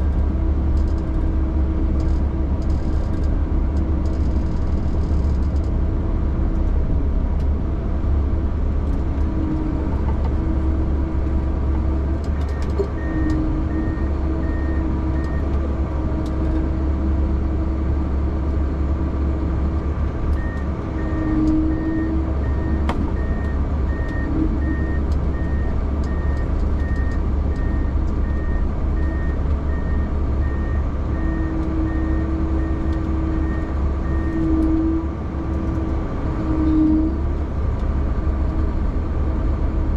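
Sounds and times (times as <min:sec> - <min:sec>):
heavy vehicle engine rumble: 0:00.0 - 0:39.9
reversing alarm beeping: 0:20.4 - 0:34.8.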